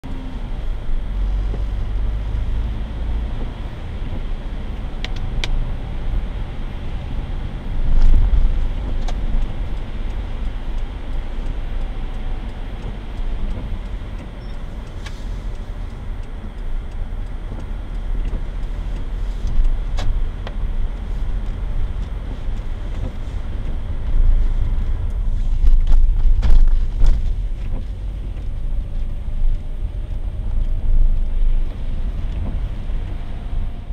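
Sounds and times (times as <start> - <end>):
car engine and road rumble: 0.0 - 33.9
tyre hiss on wet road: 14.9 - 15.8, 18.7 - 19.6.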